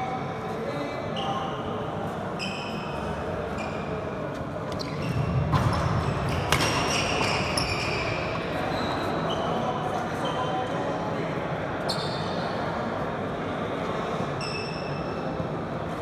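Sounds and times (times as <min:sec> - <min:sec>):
sneakers squeaking: 0:02.3 - 0:10.6, 0:11.8 - 0:12.5
racket hitting shuttlecock: 0:05.5 - 0:07.3.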